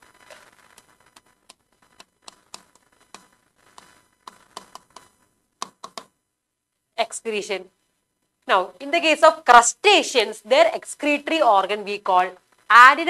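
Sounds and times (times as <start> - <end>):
stylus tapping on touchscreen: 1.9 - 6.2.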